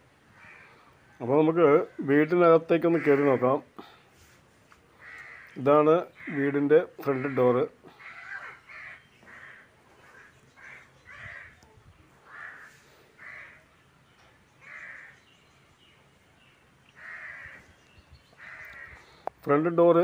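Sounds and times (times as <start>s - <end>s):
crows cawing: 0.3s - 0.9s, 2.8s - 4.0s, 4.9s - 11.6s, 12.2s - 13.7s, 14.6s - 15.2s, 16.9s - 19.3s.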